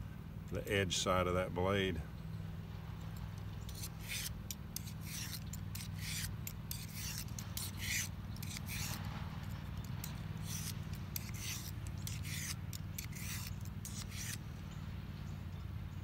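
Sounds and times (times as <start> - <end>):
knife scraping sharpening stone: 3.7 - 14.4.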